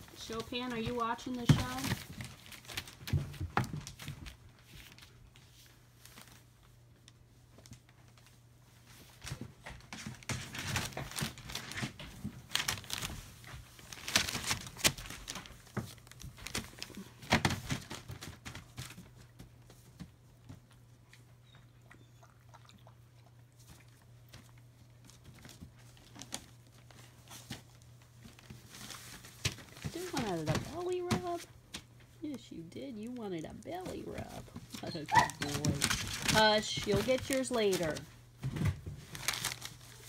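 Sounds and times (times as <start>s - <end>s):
newspaper crinkling: 0.0s - 6.7s, 8.9s - 19.5s, 24.3s - 31.9s, 33.0s - 40.0s.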